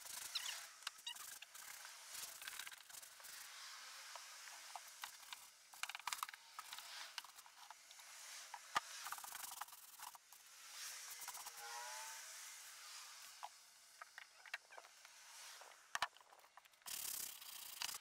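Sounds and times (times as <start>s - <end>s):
brush scrubbing wet wood: 9.0s - 10.2s, 11.1s - 11.6s.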